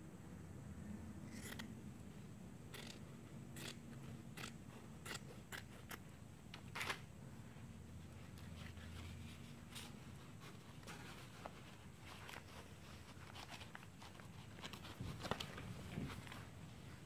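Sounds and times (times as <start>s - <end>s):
scissors snipping fabric: 2.8s - 3.0s, 3.6s - 6.0s.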